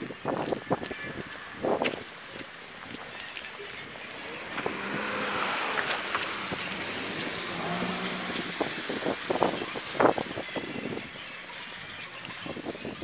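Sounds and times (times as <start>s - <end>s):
wind on microphone: 0.0s - 3.2s, 3.8s - 13.0s
road traffic: 0.7s - 12.2s
vehicle hum: 2.7s - 12.2s.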